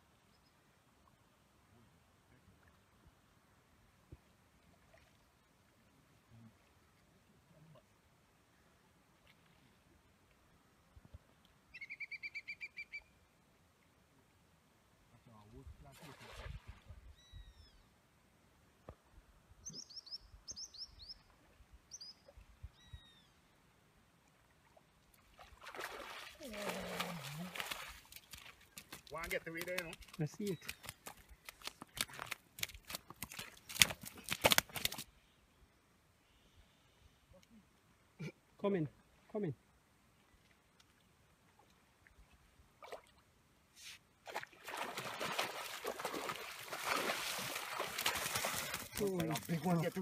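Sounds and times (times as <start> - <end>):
faint bird chirps: 11.7 - 13.2, 17.1 - 17.9, 19.6 - 21.3, 21.9 - 23.4
fish splashing in water: 25.4 - 35.0, 44.3 - 49.7.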